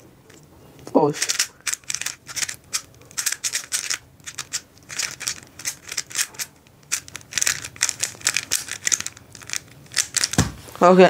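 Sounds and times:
puzzle cube turning clicks: 0.3 - 10.4.

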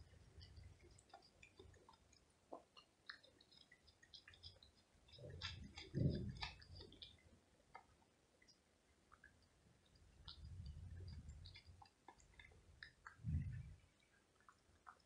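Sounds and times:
cat chewing food: 0.0 - 15.0.

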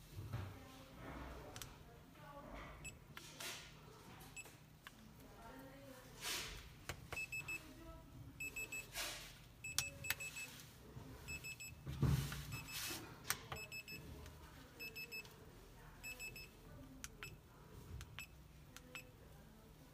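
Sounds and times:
call buttons clicking: 9.7 - 10.4.

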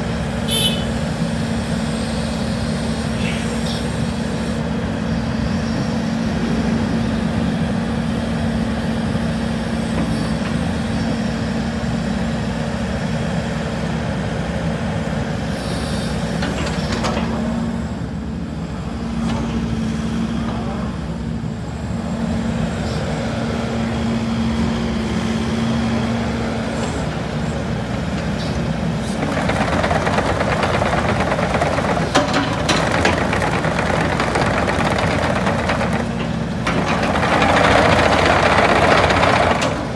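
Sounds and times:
excavator diesel engine running: 0.0 - 39.9
metal clanks: 28.4 - 39.9.

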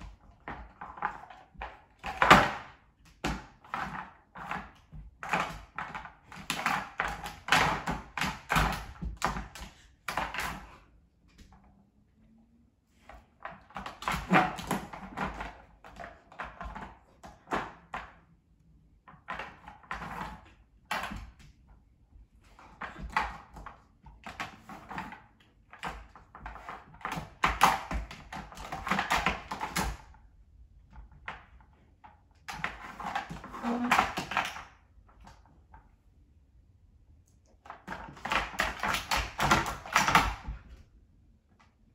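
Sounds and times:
plastic toy clattering on wooden floor: 0.3 - 10.8, 13.4 - 18.2, 22.6 - 30.2, 32.4 - 35.5, 37.6 - 40.6.

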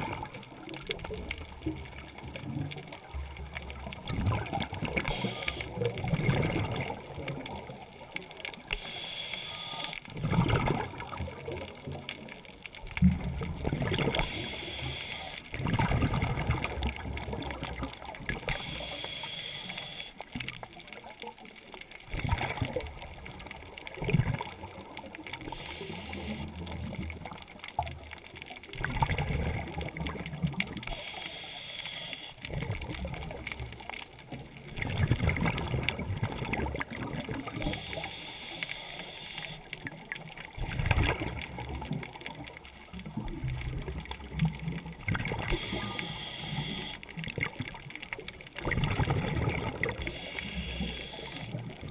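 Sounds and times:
gurgling exhaled bubbles: 0.0 - 9.0, 9.6 - 19.0, 20.3 - 31.2, 32.3 - 51.9
hissing regulator inhale: 5.0 - 5.8, 8.7 - 10.0, 14.2 - 15.5, 18.5 - 20.2, 25.5 - 26.6, 30.9 - 32.4, 37.6 - 39.7, 45.5 - 47.0, 50.0 - 51.6.

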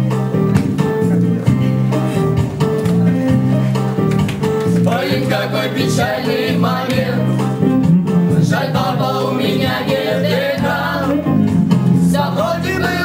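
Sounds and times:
instrumental accompaniment: 0.0 - 13.0
person singing: 12.2 - 13.0.

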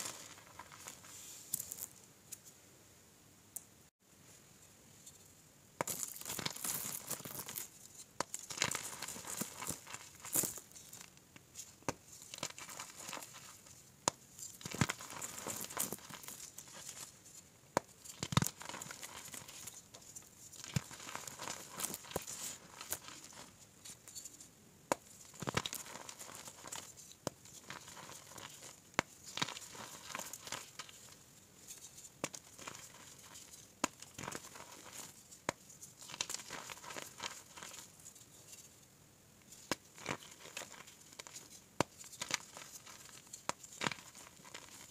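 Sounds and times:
hands crushing chalk blocks: 0.0 - 2.4, 5.8 - 24.3, 24.9 - 38.6, 39.4 - 44.9
powdery crumbling: 5.8 - 11.1, 11.8 - 17.1, 17.8 - 23.6, 24.9 - 31.2, 32.2 - 37.9, 39.6 - 44.9.

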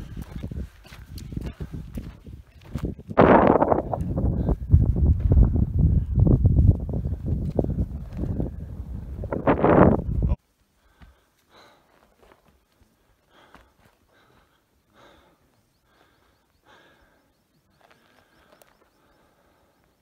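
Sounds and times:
wind buffeting microphone: 0.0 - 10.4
faint short breaths: 10.7 - 20.0.

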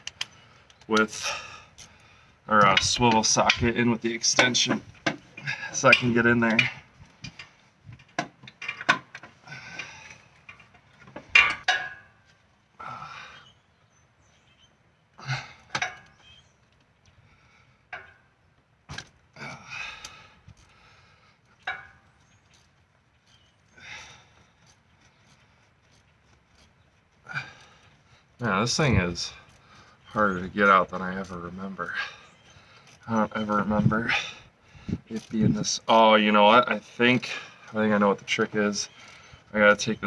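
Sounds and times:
hand tools clinking on metal: 2.6 - 12.3.

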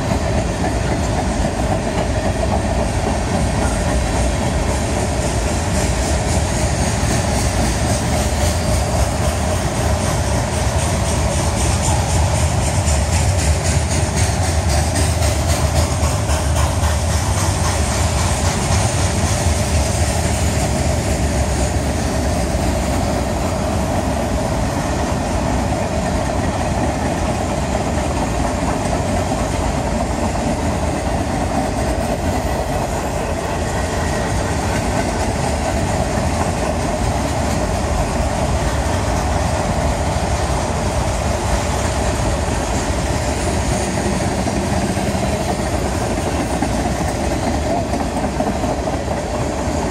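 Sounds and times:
train wheels rolling on rails: 0.0 - 49.9.

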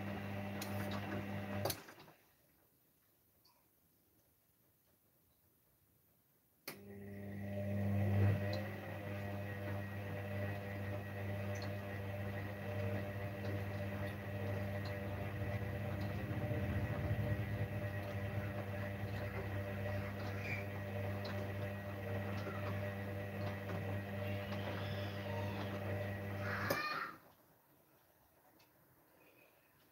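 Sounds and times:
washing machine drum spinning: 0.0 - 2.0, 7.0 - 26.9.

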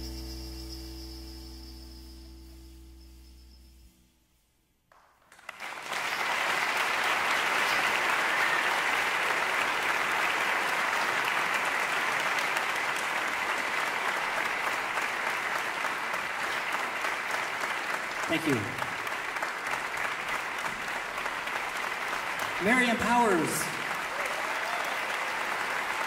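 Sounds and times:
audience applauding: 4.9 - 26.0.

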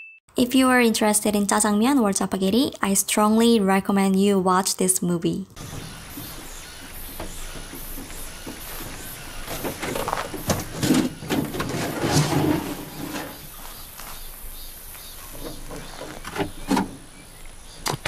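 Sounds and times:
knocks and scrapes: 5.6 - 14.2, 15.2 - 17.1
metal box door sliding open: 7.1 - 13.6
bowls sliding out: 11.0 - 13.5.

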